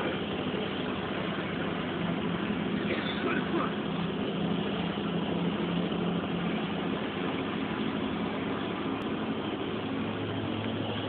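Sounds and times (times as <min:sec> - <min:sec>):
road noise: 0:00.0 - 0:11.0
vehicle engine hum: 0:00.0 - 0:11.0.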